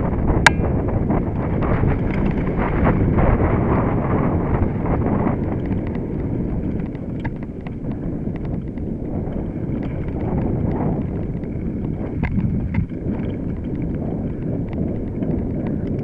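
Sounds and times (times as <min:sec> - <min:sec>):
bike rattling: 0:00.0 - 0:16.0
clicks and knocks from bumps: 0:05.4 - 0:16.0.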